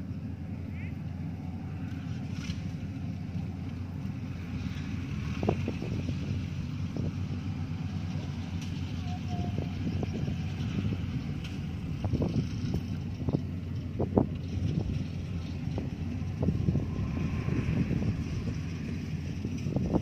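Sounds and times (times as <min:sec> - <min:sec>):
combine harvester engine running: 0:00.0 - 0:20.0.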